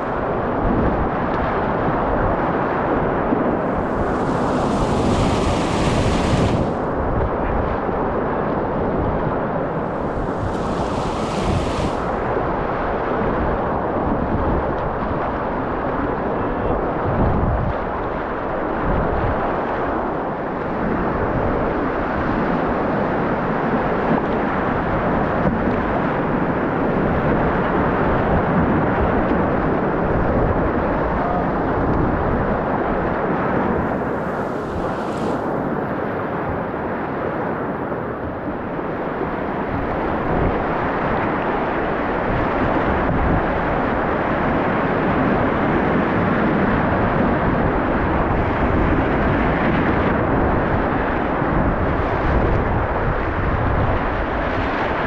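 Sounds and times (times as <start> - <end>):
low buffets on microphone: 0.0 - 55.0
whitewater rushing: 3.5 - 7.1, 9.7 - 12.3
spray splashing: 3.7 - 6.8, 9.9 - 12.2, 34.0 - 35.5.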